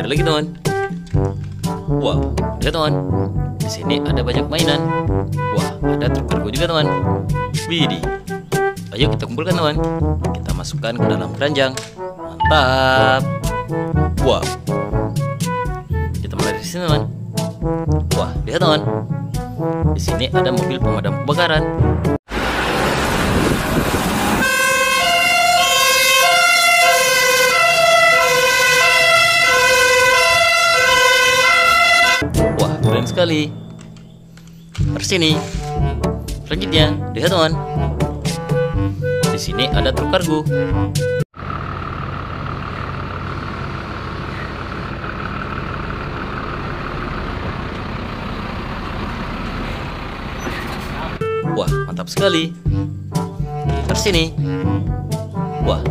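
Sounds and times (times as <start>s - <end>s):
truck diesel engine rumbling: 21.1s - 51.5s
rushing noise: 22.3s - 25.4s
fire engine two-tone siren: 22.4s - 32.2s.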